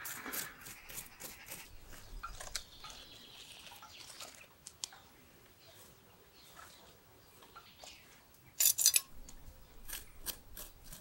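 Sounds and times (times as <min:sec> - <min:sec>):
tool scraping gritty soil: 0:00.0 - 0:04.4, 0:09.7 - 0:11.0.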